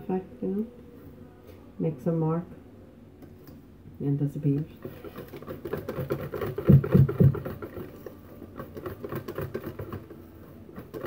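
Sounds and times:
whisk beating batter in bowl: 4.6 - 11.0.

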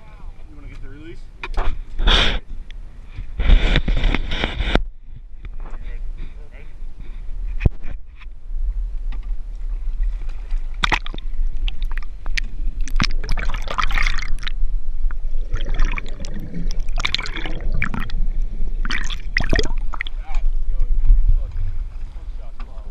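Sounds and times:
low rumble: 4.8 - 22.9
water gurgling underwater: 10.0 - 21.3.

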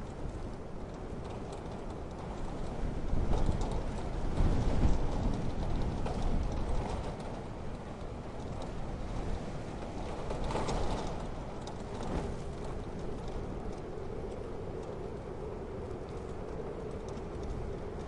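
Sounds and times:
light pattering ticks: 0.0 - 18.0
strong wind: 0.0 - 18.0.

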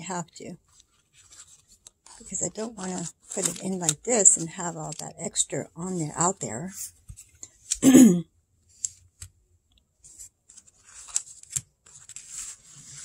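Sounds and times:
paper rustling and crinkling: 0.6 - 5.1, 10.0 - 13.0.

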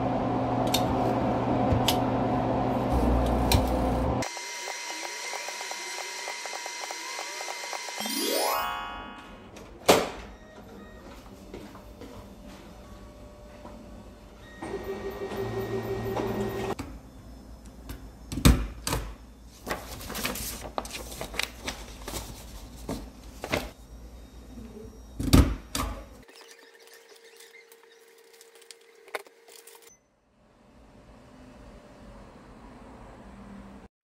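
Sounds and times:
office printer running: 14.5 - 16.8
paper rustling and shuffling: 19.5 - 23.8.

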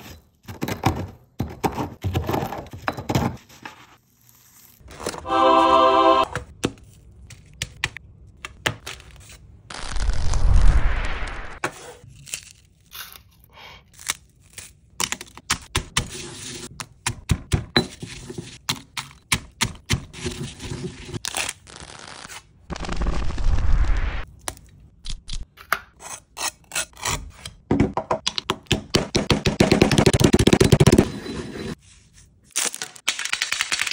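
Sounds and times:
pestle thuds: 27.7 - 31.1.

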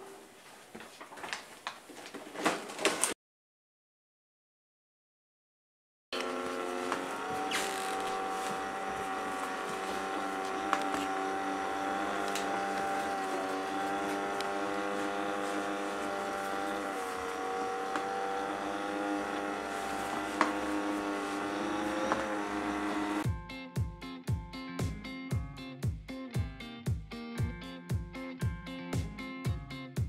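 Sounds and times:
robot vacuum motor whine: 6.2 - 23.2.

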